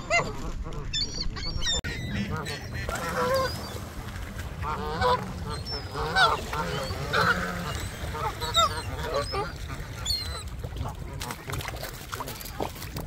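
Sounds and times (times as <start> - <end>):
geese honking: 1.8 - 11.0.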